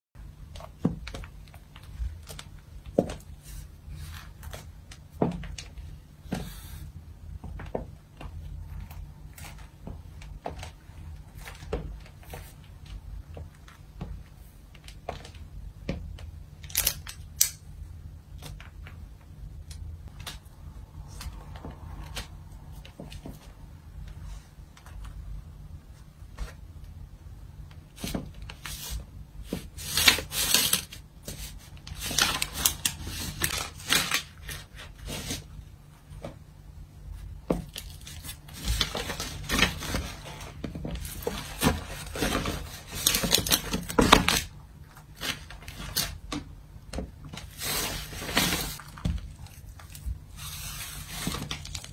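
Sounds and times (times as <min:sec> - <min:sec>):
foil crinkling and crunching: 0:29.7 - 0:35.5, 0:37.7 - 0:46.2, 0:47.4 - 0:51.9.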